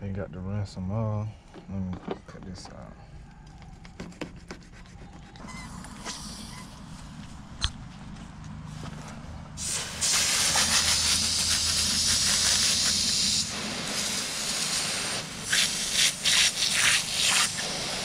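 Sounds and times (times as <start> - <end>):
hose nozzle spraying water: 9.6 - 18.0.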